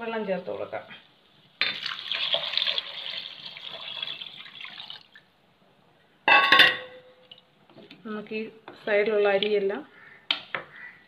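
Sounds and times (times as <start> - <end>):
water pouring and splashing: 1.6 - 5.2.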